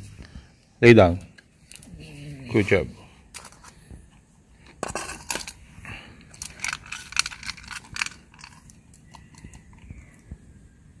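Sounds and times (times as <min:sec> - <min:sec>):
dog crunching kibble from a metal bowl: 0:06.3 - 0:09.4.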